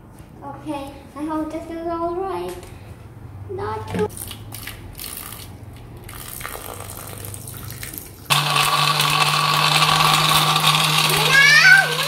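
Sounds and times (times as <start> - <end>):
water pouring into jug: 6.0 - 12.0
electric blender motor: 8.3 - 12.0.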